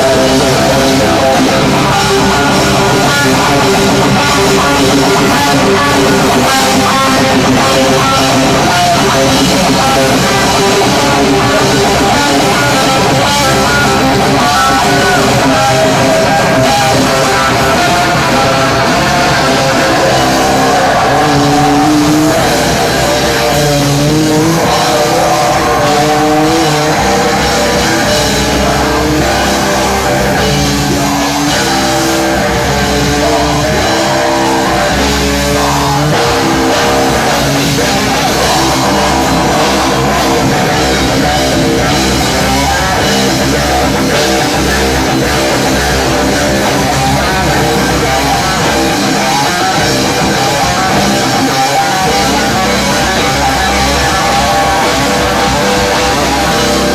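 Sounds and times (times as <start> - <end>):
bass guitar: 0.0 - 56.9
drum kit: 0.0 - 56.9
electric guitar: 0.0 - 56.9
singer shouting into microphone: 0.0 - 56.9.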